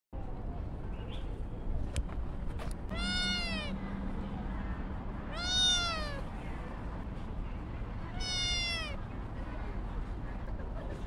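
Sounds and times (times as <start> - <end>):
kitten meowing: 2.9 - 3.8, 5.3 - 6.2, 8.1 - 9.0.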